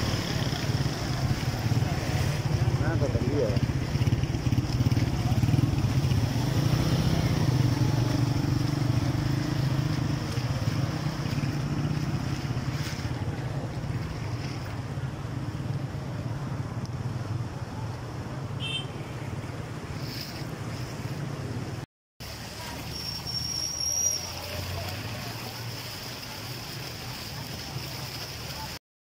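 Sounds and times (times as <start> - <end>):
motorcycle engine running: 0.0 - 14.3
water washing: 0.0 - 18.4, 19.3 - 28.8.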